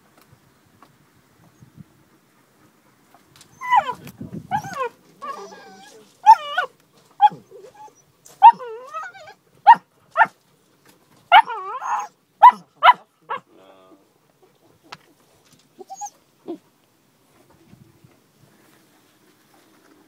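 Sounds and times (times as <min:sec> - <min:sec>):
puppies yapping: 0:03.5 - 0:10.3, 0:11.3 - 0:13.4
puppy whining: 0:03.5 - 0:10.3, 0:11.3 - 0:13.4, 0:15.8 - 0:16.6.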